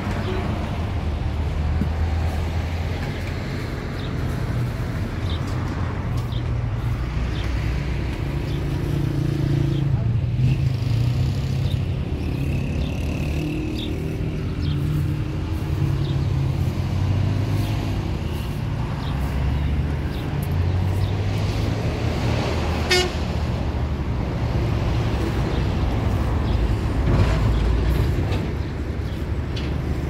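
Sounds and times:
vehicle engine running: 6.3s - 22.2s
short high horn toot: 22.9s - 23.2s.

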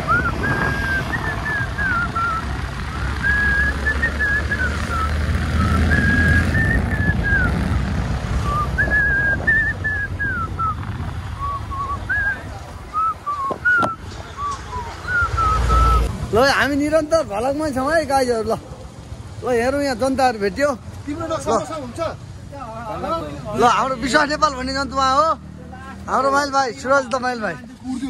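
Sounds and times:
man whistling a tune: 0.0s - 7.7s, 8.4s - 10.8s, 11.4s - 16.1s
motorcycle rumble: 0.0s - 27.0s.

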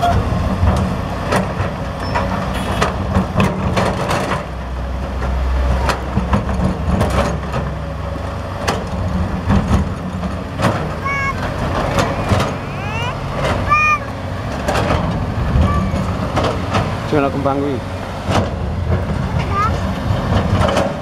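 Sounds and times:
excavator diesel engine: 0.0s - 21.0s.

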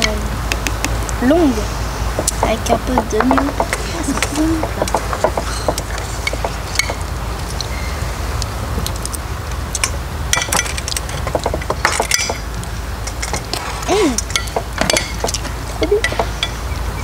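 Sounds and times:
metal utensils clinking on pan: 9.8s - 12.5s, 14.2s - 16.6s.

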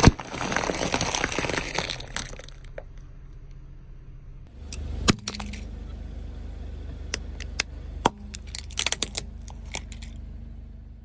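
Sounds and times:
plastic cracking under tyre: 0.0s - 3.0s, 7.4s - 10.2s
low engine rumble: 1.3s - 11.0s.

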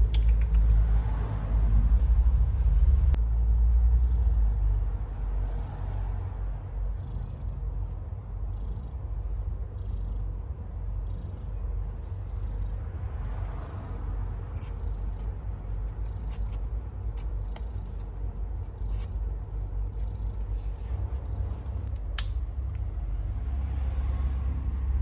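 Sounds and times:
cat purring: 3.7s - 21.9s.

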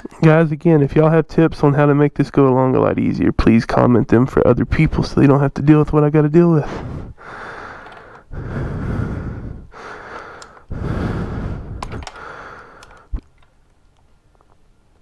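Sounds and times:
man breathing hard: 6.6s - 13.2s.

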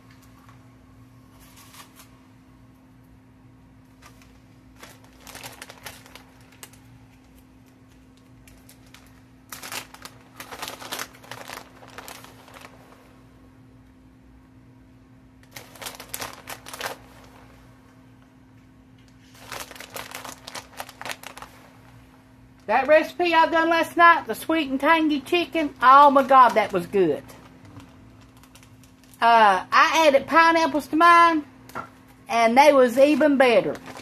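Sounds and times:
plastic bag crinkling: 4.0s - 13.2s, 15.4s - 17.6s, 19.1s - 22.0s, 25.4s - 29.3s, 32.9s - 34.0s.

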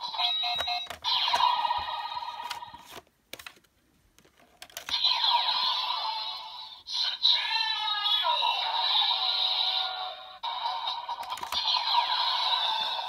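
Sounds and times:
toy electronic sound effects and music: 0.0s - 2.6s, 4.9s - 13.0s
plastic clicks: 2.4s - 5.0s, 11.2s - 11.7s.

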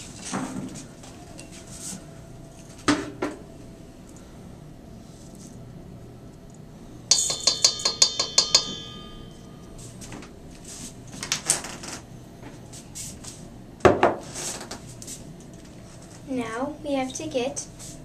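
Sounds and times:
spoon tapping ringing metal bowl: 7.1s - 9.8s.

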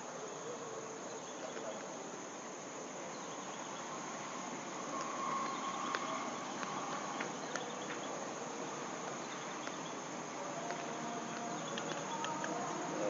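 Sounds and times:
insects chirring: 0.0s - 13.0s
faint clicks: 4.9s - 8.1s, 9.0s - 10.0s, 10.6s - 12.8s.

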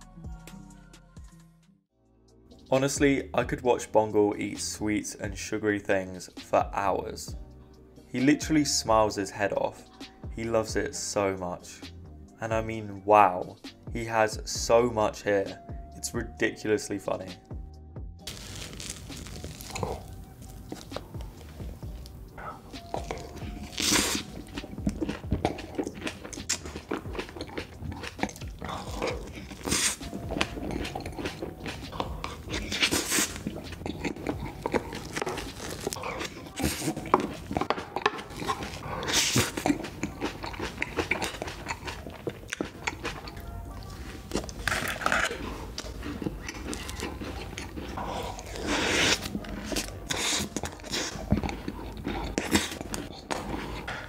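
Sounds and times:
person chewing: 18.2s - 54.0s.

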